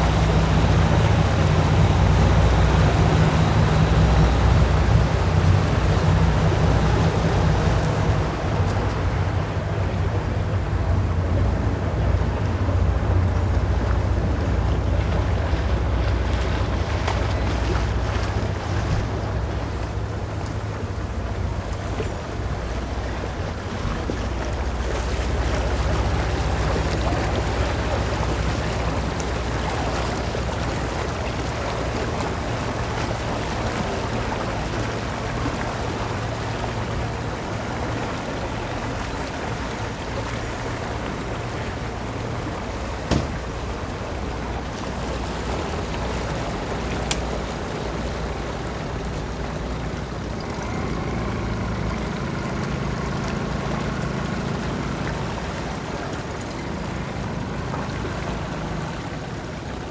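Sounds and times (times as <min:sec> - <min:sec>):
boat engines idling: 0:00.0 - 0:59.9
outboard motor hum: 0:00.0 - 0:59.9
wind and water hiss: 0:00.0 - 0:59.9
sharp knocks: 0:43.1 - 0:43.5.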